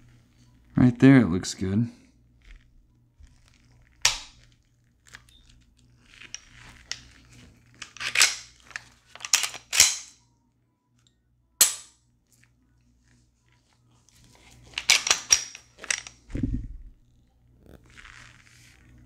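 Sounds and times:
pistol slide metallic clacks: 4.0 - 4.4, 7.8 - 10.2, 11.6 - 12.0, 14.8 - 16.2
handling rattles: 14.6 - 16.9.

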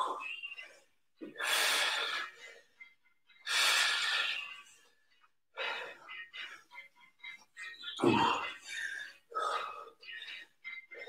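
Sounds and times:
man breathing hard: 1.2 - 2.8, 3.4 - 4.6.

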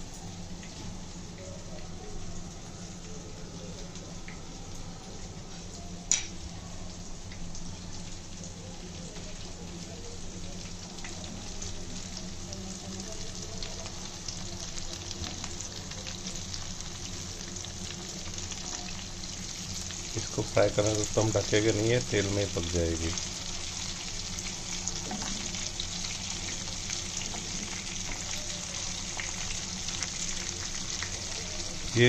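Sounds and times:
fish sizzling in oil: 0.0 - 32.0.

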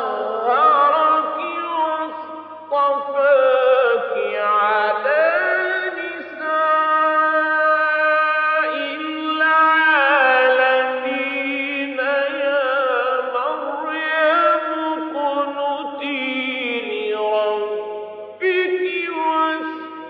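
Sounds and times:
man reciting melodically: 0.0 - 20.0.

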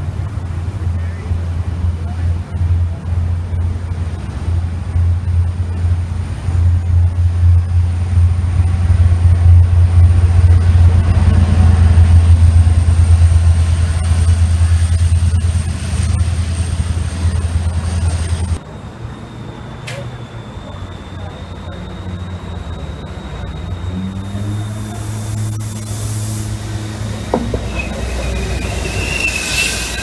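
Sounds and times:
diesel locomotive passing: 0.0 - 30.0
thin high whine: 12.3 - 30.0.

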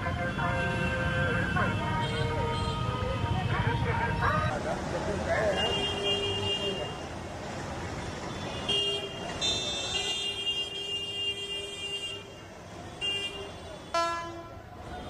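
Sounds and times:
traffic hum: 0.0 - 15.0
vehicle horns honking: 0.2 - 3.4, 5.5 - 7.1, 8.3 - 15.0.

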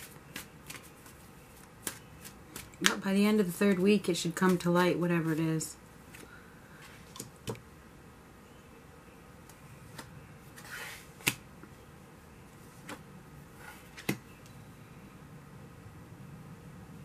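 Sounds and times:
card sliding on table: 10.6 - 11.4.

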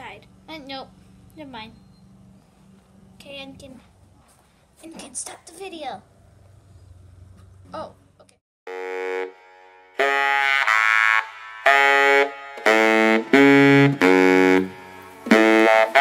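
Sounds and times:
melody of loud held notes: 8.7 - 16.0.

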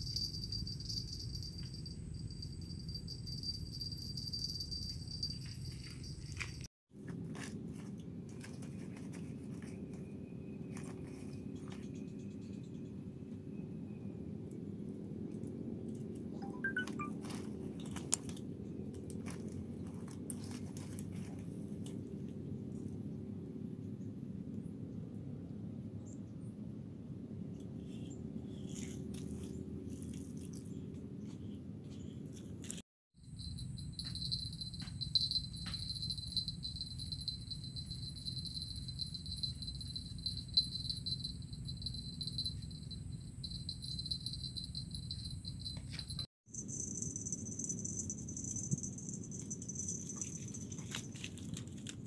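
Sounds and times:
pulsing insect trill: 0.0 - 5.7, 33.2 - 51.2
low background hum: 0.0 - 52.0.

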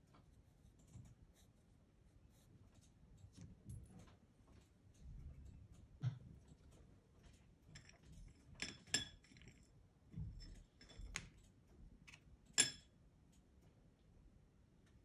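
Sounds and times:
pencils clinking on porcelain plate: 6.6 - 11.4, 12.1 - 12.9.

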